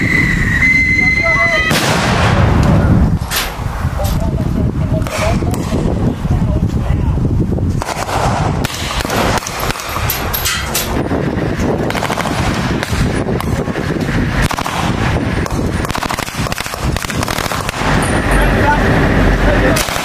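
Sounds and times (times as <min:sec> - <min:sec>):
automatic gunfire: 0:07.8 - 0:10.1, 0:11.9 - 0:13.0, 0:14.4 - 0:18.0, 0:19.8 - 0:20.0.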